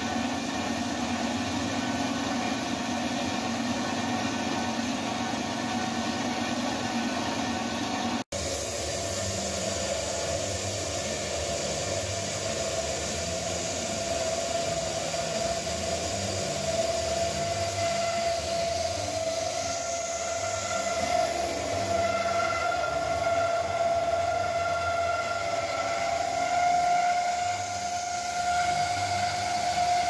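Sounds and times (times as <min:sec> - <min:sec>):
bandsaw cutting pipe: 0:08.4 - 0:30.0.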